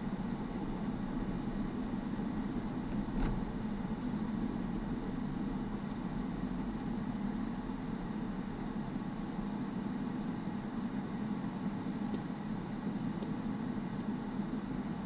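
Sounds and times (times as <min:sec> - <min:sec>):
car engine and tyre noise: 0:00.0 - 0:15.0.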